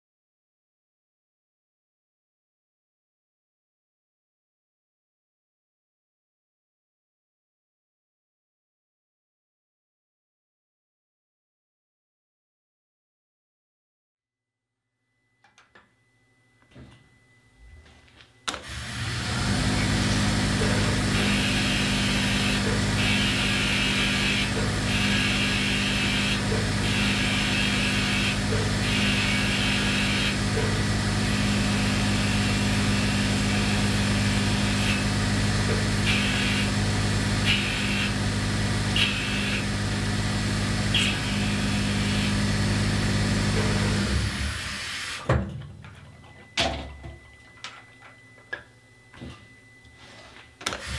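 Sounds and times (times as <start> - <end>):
lathe spindle humming: 18.6 - 44.9.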